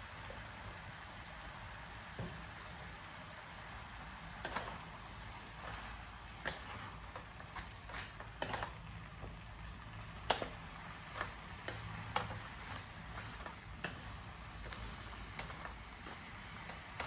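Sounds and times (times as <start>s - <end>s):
wooden spatula scraping metal wok: 4.3s - 17.0s.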